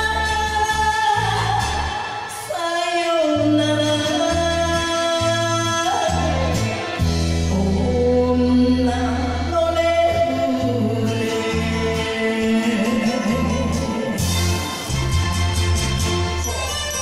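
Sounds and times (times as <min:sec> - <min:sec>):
woman singing into microphone: 0:00.0 - 0:14.4
karaoke backing track: 0:00.0 - 0:17.0.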